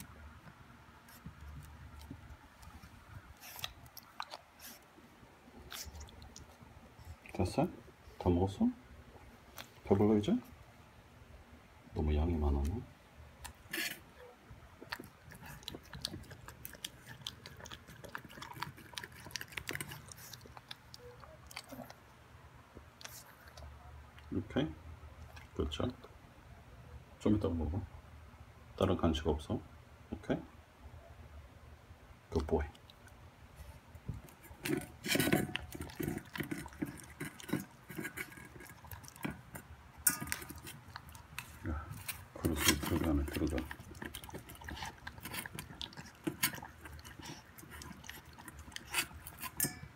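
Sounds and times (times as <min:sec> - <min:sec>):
dog chewing and licking: 0:00.3 - 0:07.4, 0:14.8 - 0:22.1, 0:32.4 - 0:49.9
puppy eating from metal bowl: 0:14.8 - 0:22.0, 0:34.1 - 0:49.9.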